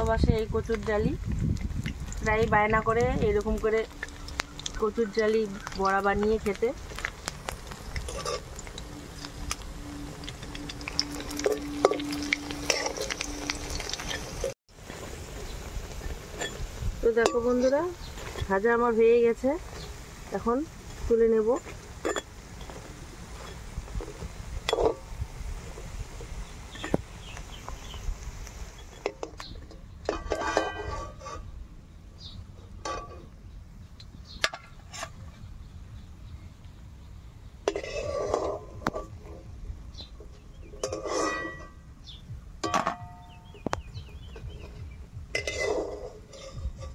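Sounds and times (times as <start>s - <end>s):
oil sizzling: 0.0s - 31.4s
metal spatula scraping a pan: 3.6s - 15.1s, 30.0s - 31.6s, 37.7s - 39.4s, 40.6s - 41.8s, 45.3s - 46.9s.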